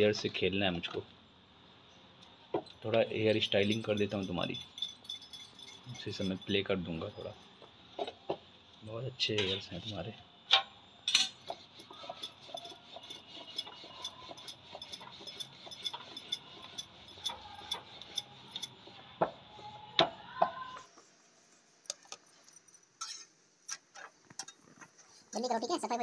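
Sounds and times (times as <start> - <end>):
utensils and pans clinking: 3.0 - 7.3, 11.1 - 18.8.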